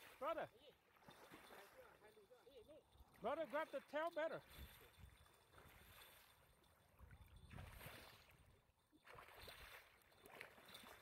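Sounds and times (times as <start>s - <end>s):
fish splashing in shallow water: 0.8s - 2.0s, 4.4s - 11.0s.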